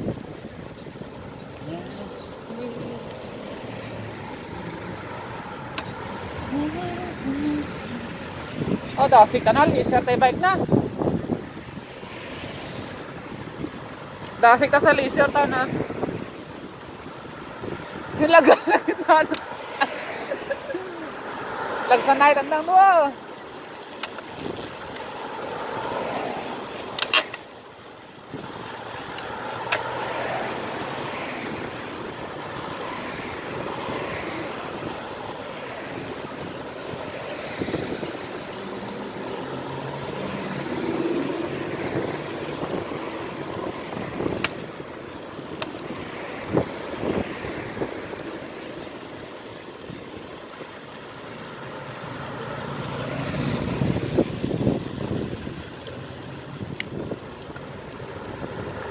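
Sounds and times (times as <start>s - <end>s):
tyre noise on asphalt: 0.0s - 58.9s
wind over microphone: 4.2s - 18.4s, 35.9s - 38.7s, 40.6s - 44.8s, 45.9s - 48.6s, 53.2s - 55.9s, 56.5s - 57.5s.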